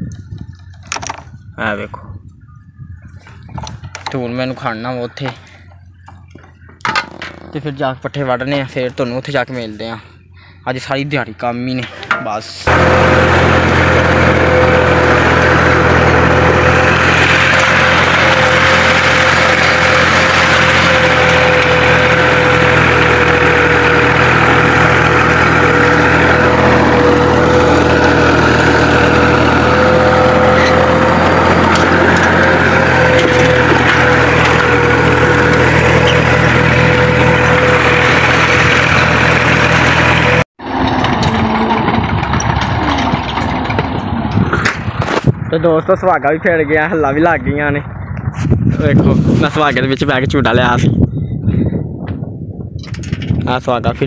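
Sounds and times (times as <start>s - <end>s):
tractor engine running under load: 11.8s - 51.0s.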